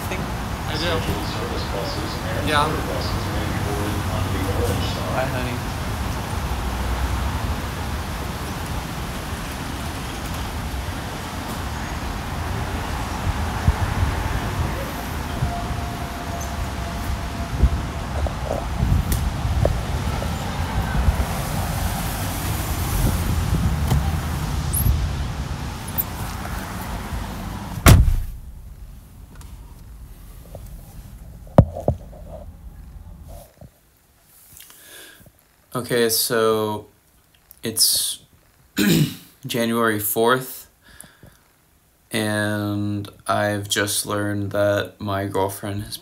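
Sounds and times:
traffic noise low rumble: 0.0s - 34.6s
wind buffeting microphone: 0.2s - 33.4s
sharp knock: 27.8s - 28.6s.

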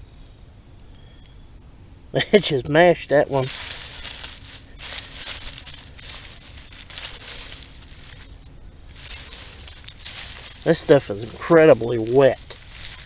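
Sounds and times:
hand rustling through dry straw: 3.0s - 13.0s.

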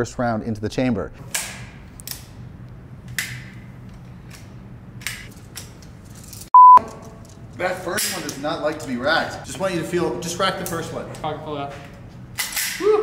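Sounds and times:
censor bleep: 6.5s - 6.8s.

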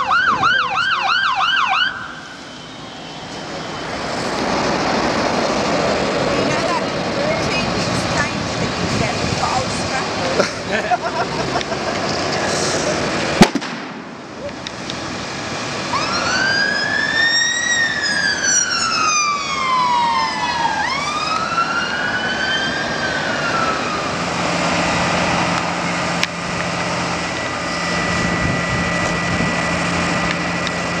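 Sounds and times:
emergency siren wailing: 0.0s - 13.4s, 14.2s - 31.0s
fire and hoses rushing: 0.0s - 31.0s
loud sharp bang: 13.4s - 14.3s.

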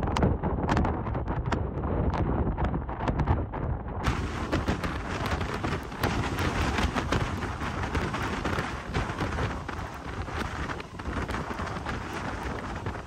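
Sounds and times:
wind buffeting microphone: 0.0s - 13.0s
driving rain: 4.0s - 13.0s
rough water surging: 4.1s - 13.0s.

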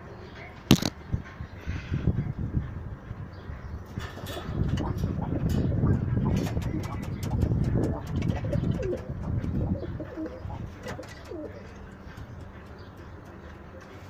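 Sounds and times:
pigeons cooing: 3.5s - 14.0s.

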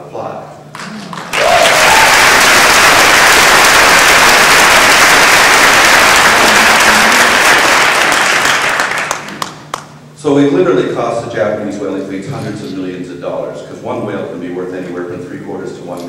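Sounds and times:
audience applauding: 1.1s - 9.9s.

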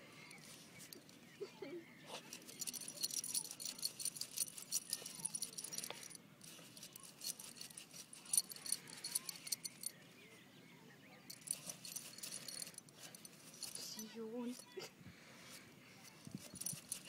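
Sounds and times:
dog tags jingling: 2.2s - 10.0s, 11.3s - 14.8s, 16.0s - 17.0s.

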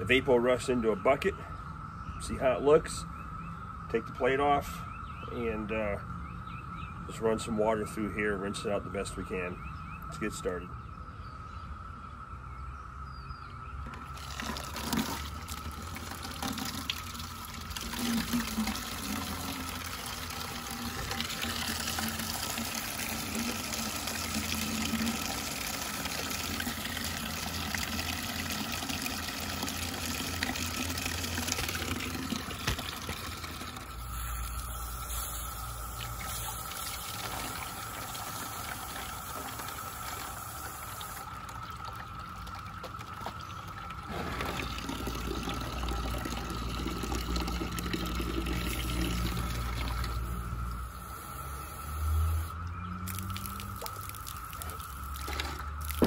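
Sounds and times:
liquid pouring into funnel: 13.9s - 50.3s.

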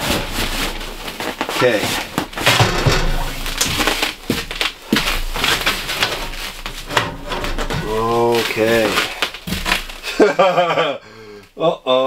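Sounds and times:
sheet metal scraping and knocking: 2.2s - 9.9s.

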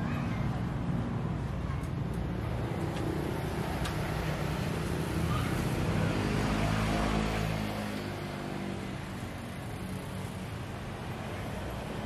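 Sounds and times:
vehicle engine passing by: 4.4s - 9.9s.

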